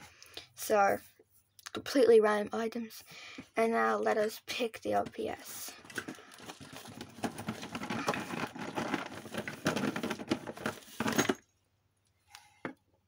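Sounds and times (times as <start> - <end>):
plastic toys clattering: 5.1 - 11.5.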